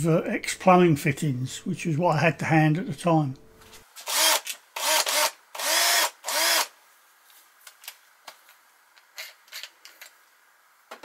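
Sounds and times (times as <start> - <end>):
cordless drill motor whine: 4.0 - 6.7.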